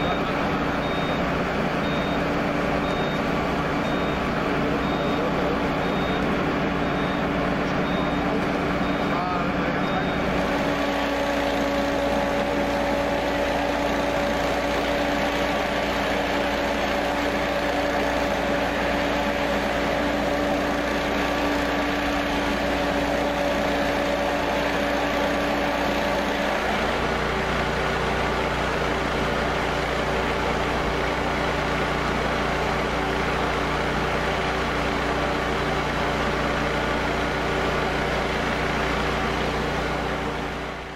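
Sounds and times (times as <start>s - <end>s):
engine humming: 0.0s - 40.9s.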